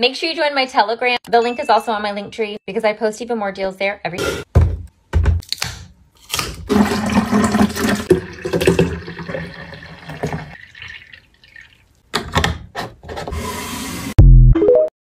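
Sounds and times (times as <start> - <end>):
juice pouring into glass carafe: 6.7 - 12.0.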